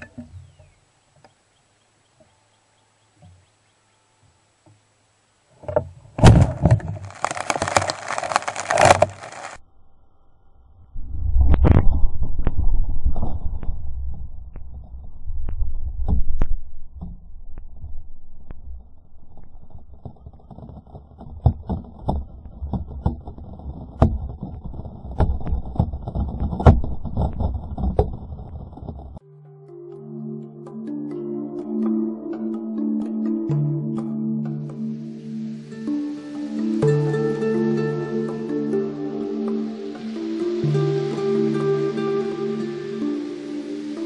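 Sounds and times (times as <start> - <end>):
hissing crackling water spray: 5.5 - 9.6, 35.2 - 44.0
wind rumble on microphone: 10.8 - 29.2.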